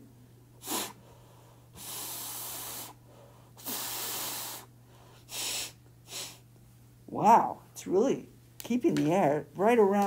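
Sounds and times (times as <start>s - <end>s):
breath blown through face mask: 0.6s - 6.4s.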